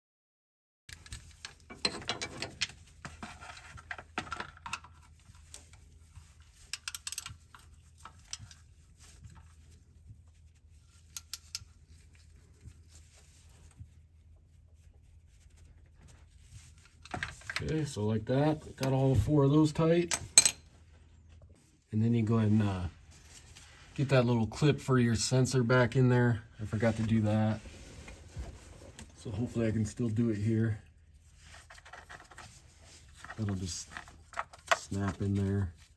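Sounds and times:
ratchet clinking and scraping on metal: 0:00.9 - 0:08.7, 0:11.0 - 0:12.3, 0:20.1 - 0:20.7.

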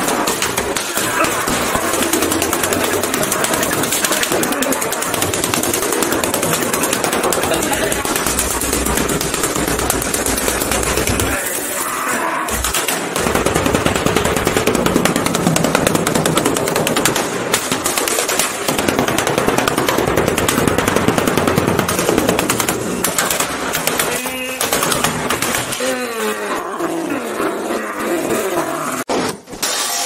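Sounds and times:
sheet metal crunching: 0:00.0 - 0:26.2.

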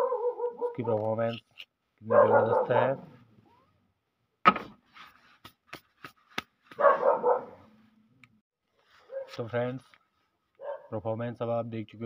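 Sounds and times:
dog barking: 0:00.0 - 0:00.9, 0:02.1 - 0:03.2, 0:06.7 - 0:07.7, 0:09.1 - 0:09.4, 0:10.6 - 0:11.0.

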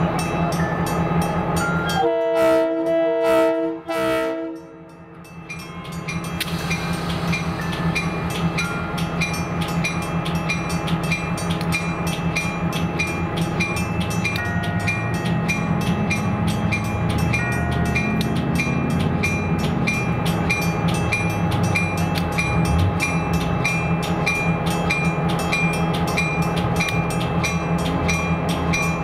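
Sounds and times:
locomotive bell ringing: 0:00.0 - 0:02.5, 0:04.3 - 0:29.0
locomotive engine running: 0:05.0 - 0:29.0.

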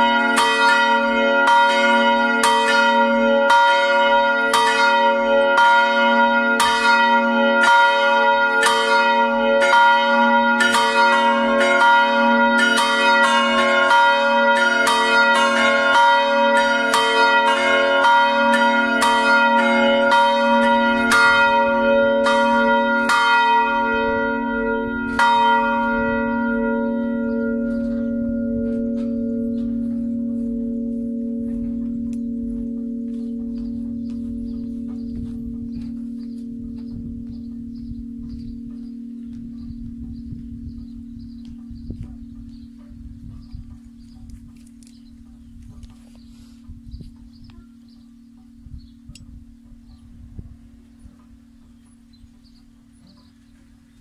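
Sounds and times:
church bells ringing: 0:00.0 - 0:54.0
bell hum: 0:16.9 - 0:45.6.

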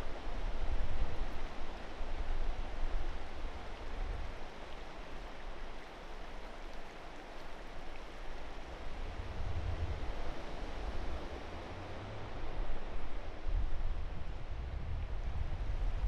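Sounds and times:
wind buffeting microphone: 0:08.7 - 0:16.0.

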